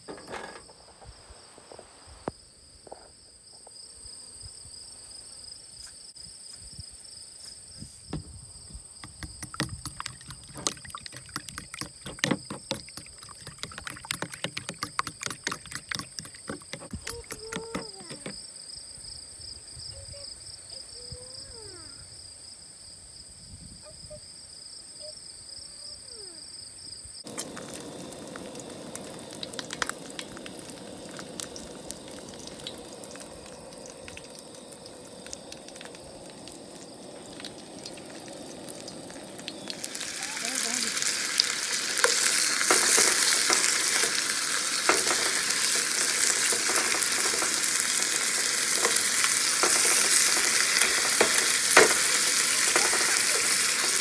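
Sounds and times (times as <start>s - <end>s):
steady hiss: 0.0s - 2.4s, 27.3s - 54.0s
fork beating eggs in a bowl: 9.0s - 18.4s.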